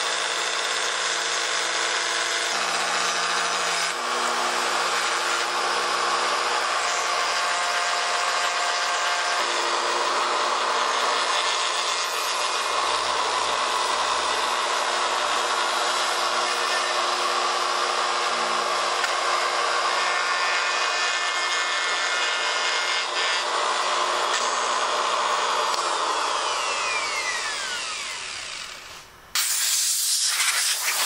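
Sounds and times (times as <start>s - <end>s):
router whining: 0.0s - 31.0s
compressed air blow gun hiss: 29.3s - 31.0s.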